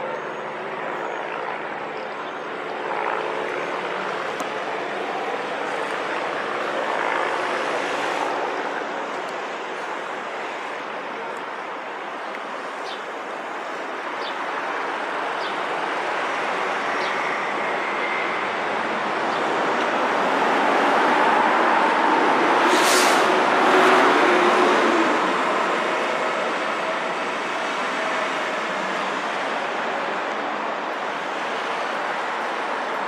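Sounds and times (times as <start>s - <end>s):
street traffic: 0.0s - 33.0s
short sharp burst of noise: 22.6s - 23.4s.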